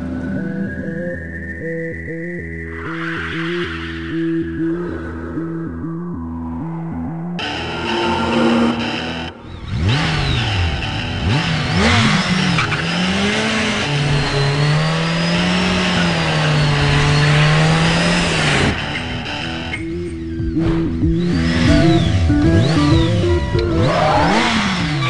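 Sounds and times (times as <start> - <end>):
music: 0.0 - 9.4, 19.1 - 25.0
motorcycle engine revving: 7.4 - 25.0.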